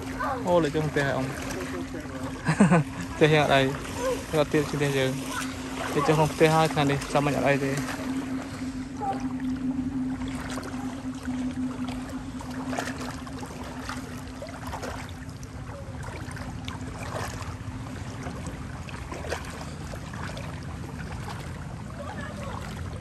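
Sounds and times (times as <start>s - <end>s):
motor droning: 0.0s - 23.0s.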